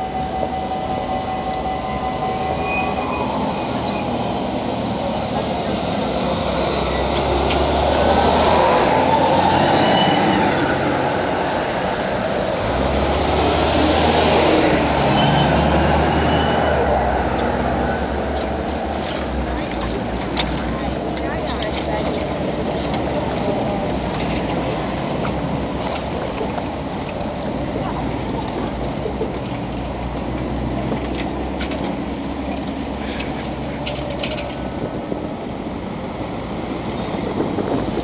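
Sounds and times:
thin high squealing: 0.0 - 7.2, 29.2 - 35.1
buses driving past: 0.0 - 38.0.

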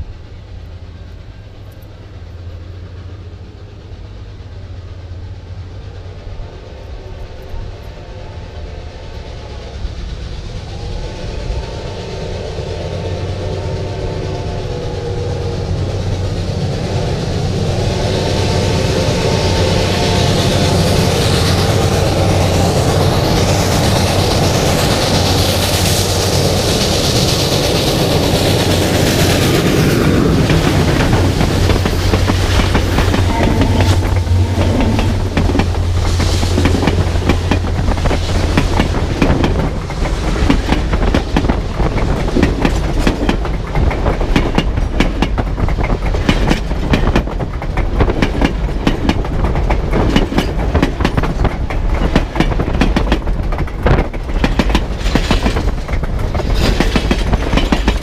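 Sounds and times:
steam locomotive running noise: 0.0 - 58.0
steam whistle blasts: 7.6 - 15.8, 33.0 - 36.4.

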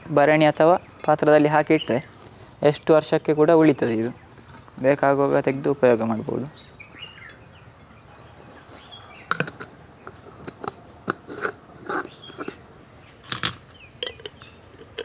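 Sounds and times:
faint birds chirping: 0.0 - 15.0
jars knocking and lids clicking: 9.2 - 12.6, 13.3 - 15.0.

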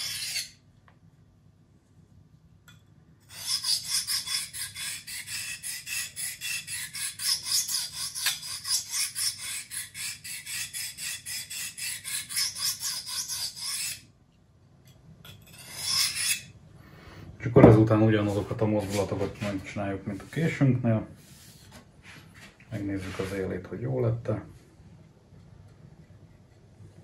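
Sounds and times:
knife scraping on sharpening stone: 0.0 - 0.6, 3.3 - 14.0, 15.3 - 16.5.

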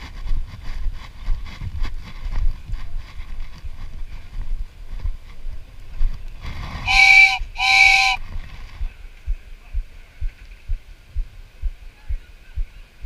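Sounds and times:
two-note horn blasts: 6.8 - 8.2.

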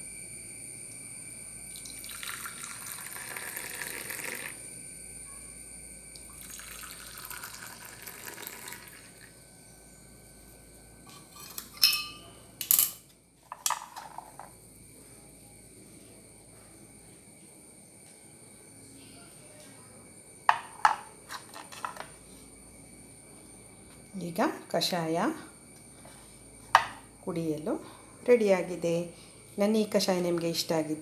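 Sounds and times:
milk pouring into mugs: 1.7 - 4.6, 6.2 - 9.4
ceramic mugs clinking: 11.2 - 14.5, 20.5 - 22.1, 26.8 - 27.0.

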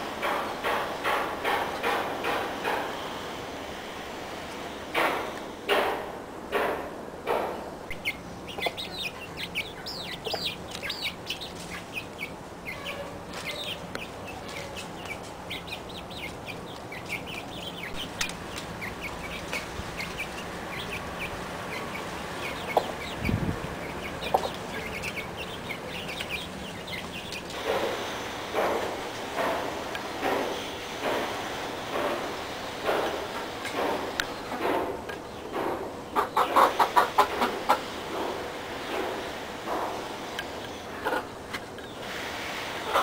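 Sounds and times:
sharp knocks: 0.2 - 2.9, 4.9 - 7.7, 27.6 - 31.3
chickens clucking: 4.9 - 43.0.

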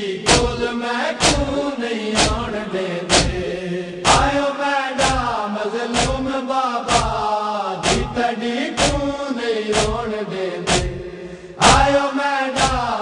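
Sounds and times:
men chanting in unison: 0.0 - 13.0
chest-beating rhythm: 0.3 - 4.4, 6.0 - 6.3, 6.9 - 12.0.

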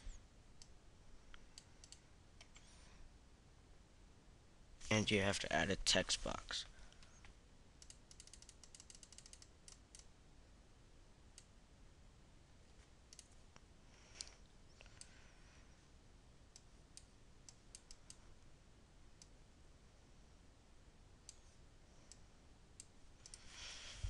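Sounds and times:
computer mouse clicking: 0.6 - 2.7, 7.8 - 10.1, 13.1 - 13.4, 16.5 - 18.2.

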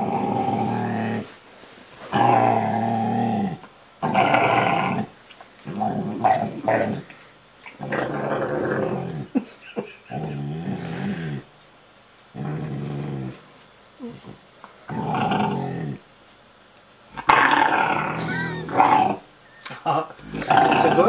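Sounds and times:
dog grumbling and growl-moaning: 0.0 - 1.4, 2.1 - 7.1, 7.8 - 9.4, 10.0 - 11.5, 12.3 - 13.4, 14.0 - 16.0, 17.2 - 19.3, 19.9 - 21.0.

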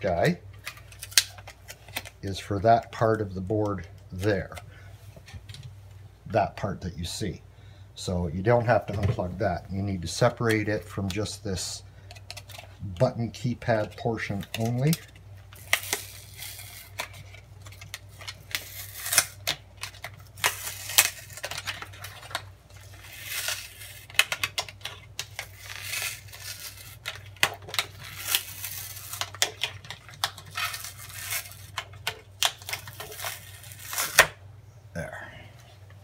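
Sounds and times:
plastic tearing and crackling: 0.2 - 4.6, 12.1 - 34.4.

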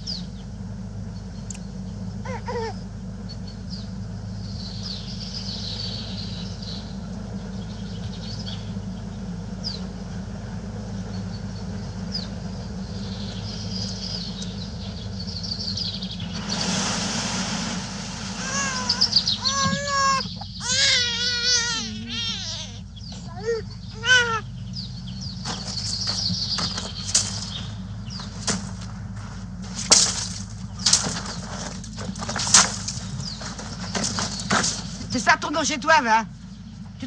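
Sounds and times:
small birds chirping: 0.0 - 16.8, 18.4 - 37.0
low hum: 0.0 - 37.0
baby crying: 2.2 - 2.8, 18.4 - 24.5.

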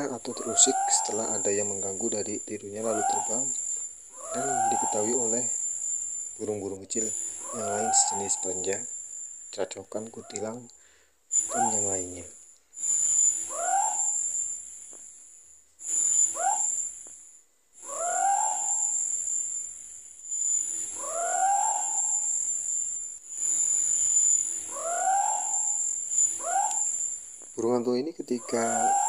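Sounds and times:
owl hooting: 0.0 - 15.1, 15.8 - 29.0
high-pitched insect chorus: 0.0 - 29.0.

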